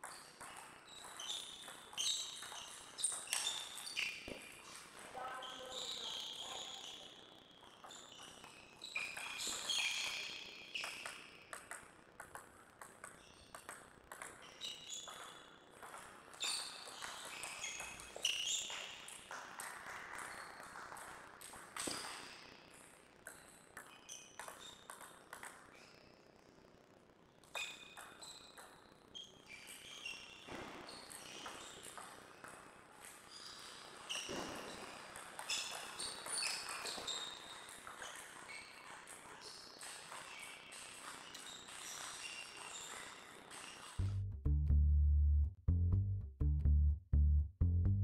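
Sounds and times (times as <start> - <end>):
ball clicking off paddles: 7.9 - 25.8
ball bouncing on table: 10.8 - 22.4.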